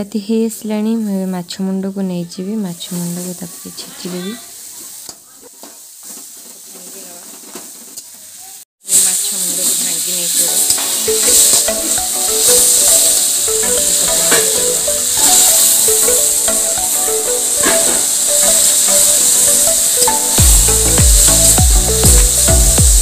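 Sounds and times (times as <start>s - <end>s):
food sizzling in hot oil: 2.8s - 23.0s
background music: 10.6s - 23.0s.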